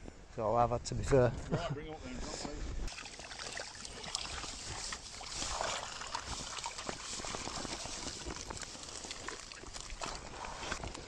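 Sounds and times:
small splashes: 2.9 - 10.9
water trickling and dripping: 2.9 - 10.9.

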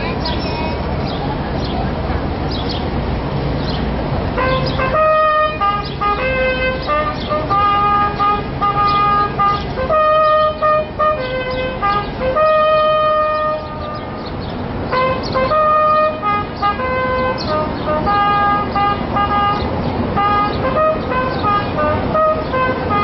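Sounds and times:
brass instrument slow melody: 4.4 - 14.2, 14.9 - 23.0.

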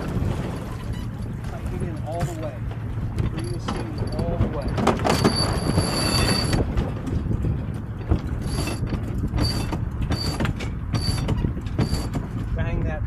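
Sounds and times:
water rushing: 0.0 - 6.7
wind: 0.0 - 13.0.

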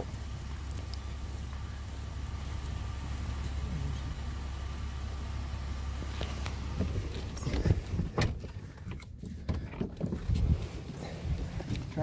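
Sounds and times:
engine idling: 0.0 - 12.0
irregular knocks and clunks: 6.1 - 10.4.

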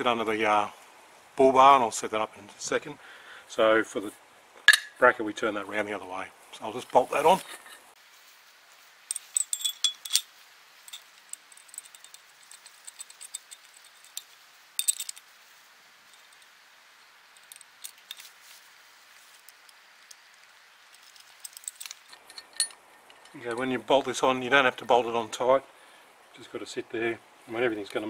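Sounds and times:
metallic clinks of bolt and nut: 9.1 - 15.3, 16.1 - 16.6, 17.2 - 18.4, 19.4 - 23.8.

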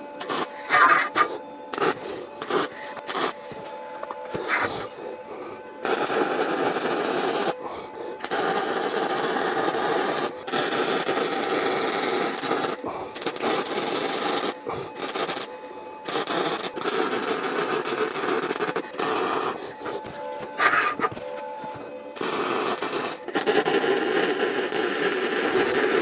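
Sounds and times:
welding arc crackling: 8.2 - 19.6, 22.2 - 26.0.

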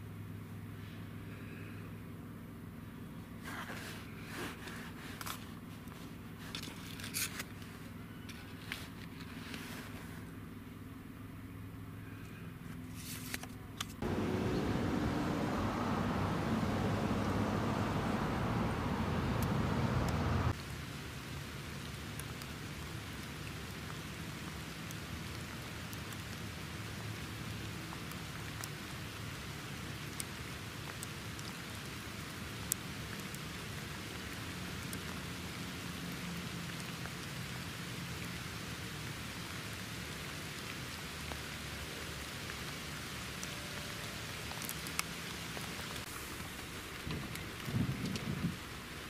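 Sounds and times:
steady rain: 14.0 - 49.0.

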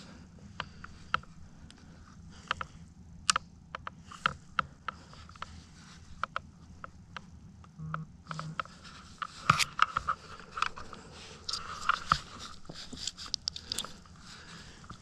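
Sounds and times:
sharp clicks and scrapes: 7.9 - 14.1
clothing and gear rustling: 8.7 - 15.0.

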